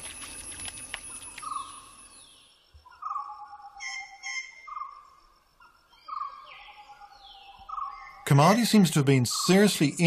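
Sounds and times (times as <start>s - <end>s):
high chirping call: 1.0s - 10.0s
whistled animal call: 2.9s - 5.0s.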